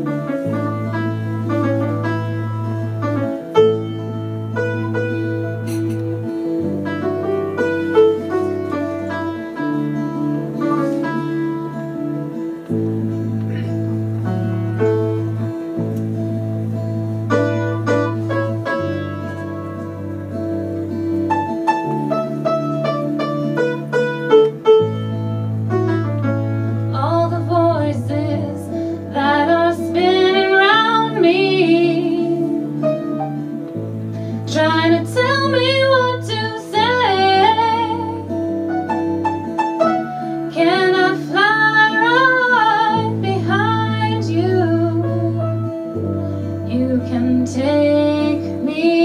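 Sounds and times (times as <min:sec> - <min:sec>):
guitars and piano: 0:00.0 - 0:49.0
woman singing: 0:26.9 - 0:33.2, 0:34.5 - 0:38.4, 0:40.5 - 0:49.0.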